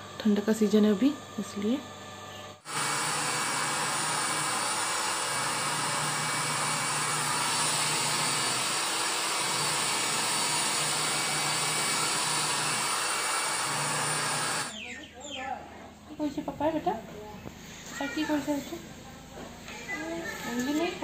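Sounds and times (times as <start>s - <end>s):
hair dryer blowing: 0.0s - 1.8s, 2.6s - 14.8s.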